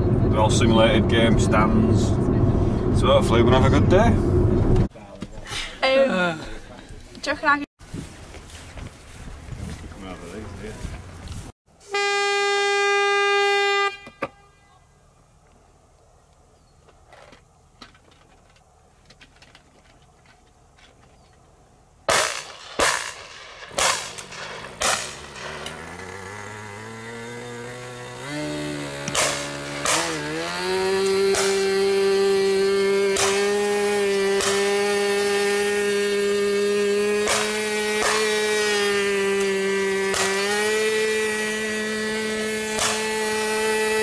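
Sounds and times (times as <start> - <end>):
shotgun shots: 22.1 - 25.6, 29.1 - 30.2, 37.2 - 38.3.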